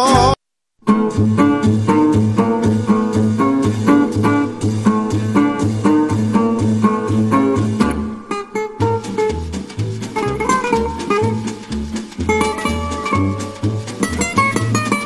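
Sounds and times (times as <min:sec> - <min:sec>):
instrumental swing jazz: 0:01.0 - 0:08.0, 0:08.6 - 0:15.0.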